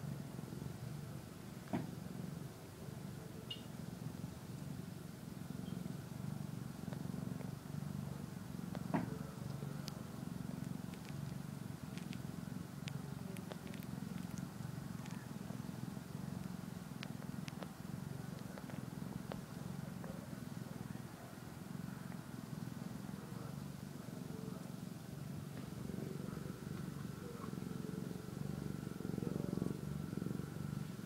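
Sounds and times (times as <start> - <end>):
kitten purring: 0.0 - 31.0
faint clicks: 6.9 - 7.6, 8.7 - 20.3.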